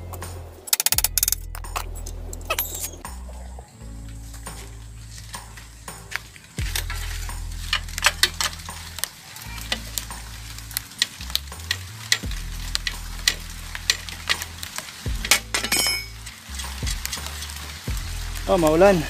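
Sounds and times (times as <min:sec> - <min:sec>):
socket wrench ratcheting: 0:00.7 - 0:03.0.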